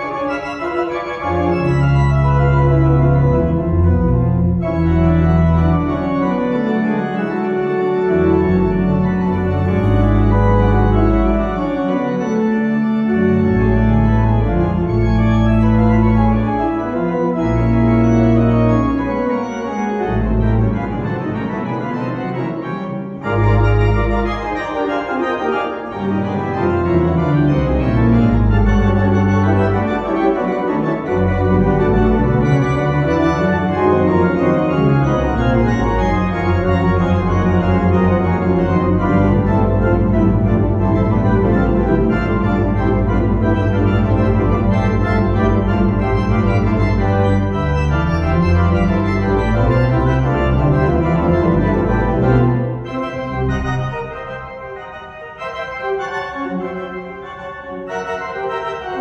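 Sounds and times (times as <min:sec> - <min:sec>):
church organ playing chords: 0:00.0 - 0:59.0.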